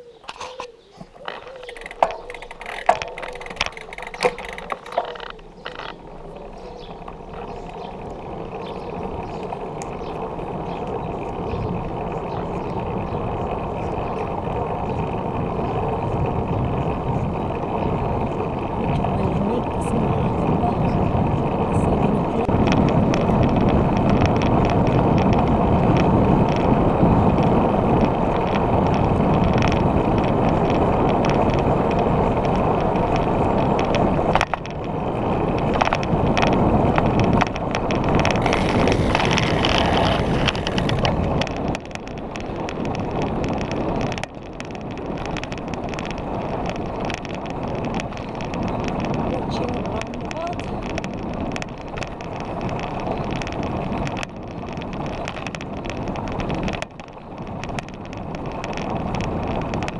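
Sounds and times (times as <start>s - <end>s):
bike tyre road noise: 0.0s - 59.9s
wind on microphone: 0.0s - 59.9s
small clicks: 0.2s - 6.0s, 35.6s - 59.9s.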